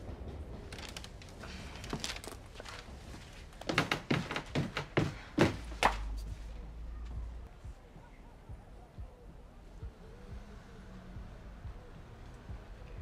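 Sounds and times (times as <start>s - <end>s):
footsteps going down stairs: 0.0s - 7.2s.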